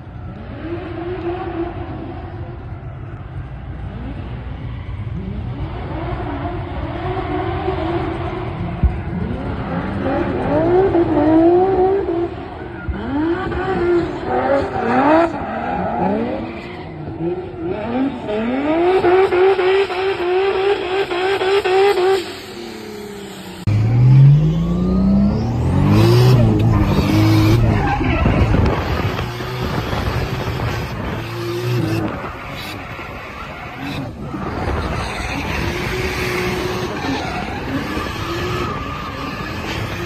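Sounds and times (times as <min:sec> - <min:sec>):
car engines revving: 0:00.0 - 0:40.0
engine pulling up through revs: 0:00.1 - 0:40.0
tyre squeal: 0:26.2 - 0:29.8.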